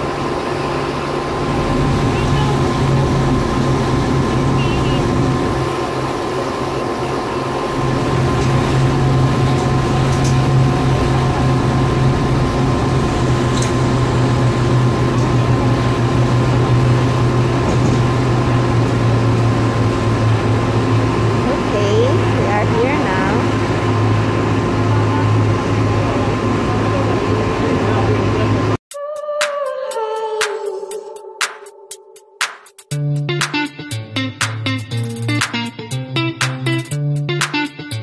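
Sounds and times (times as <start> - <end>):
ferry engines droning: 0.0 - 28.8.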